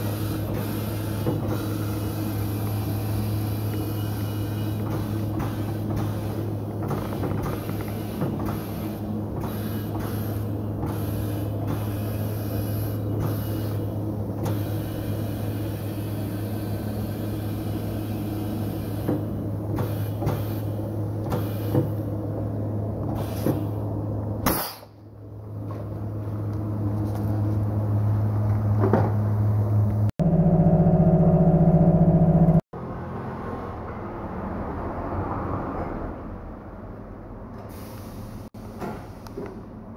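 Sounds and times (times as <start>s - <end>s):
machinery humming: 25.2s - 32.6s
wheel balancer spinning tyre: 25.6s - 32.6s.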